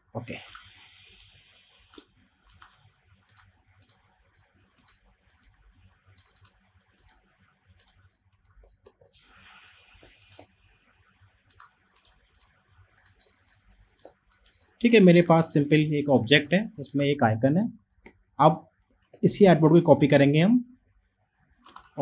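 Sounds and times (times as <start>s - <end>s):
low steady hiss: 0.0s - 22.0s
computer mouse clicks: 0.4s - 9.2s, 10.0s - 10.6s, 11.5s - 15.0s, 18.8s - 19.2s, 21.6s - 22.0s.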